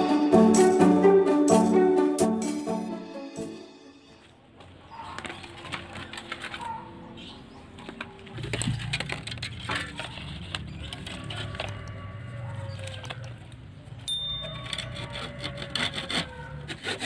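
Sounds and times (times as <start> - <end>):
birds chirping: 4.1 - 9.1
dry bamboo clicking and rustling: 4.6 - 17.0.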